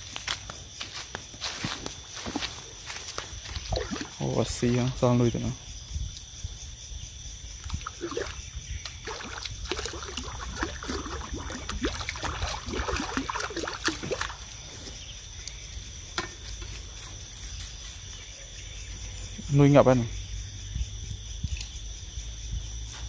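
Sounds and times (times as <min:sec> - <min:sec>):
night insects trilling: 0:00.0 - 0:23.0
shallow water splashing: 0:03.4 - 0:04.2, 0:07.7 - 0:14.6.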